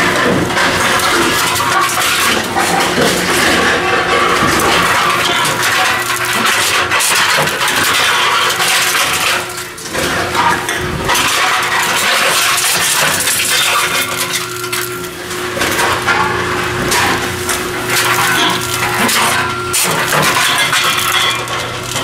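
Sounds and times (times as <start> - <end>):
cans clattering and crunching: 0.0 - 22.0
machine hum: 0.0 - 22.0.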